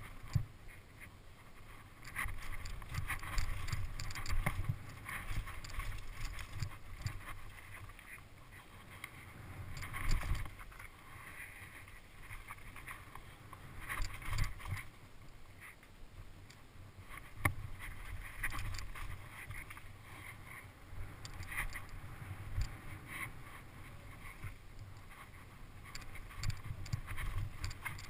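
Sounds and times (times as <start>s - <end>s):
bike rattling over bumps: 2.0s - 7.9s, 9.6s - 10.8s.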